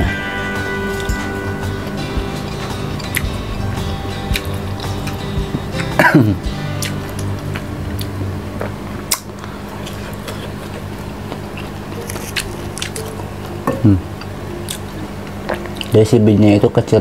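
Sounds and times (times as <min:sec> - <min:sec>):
background music: 0:00.0 - 0:09.3.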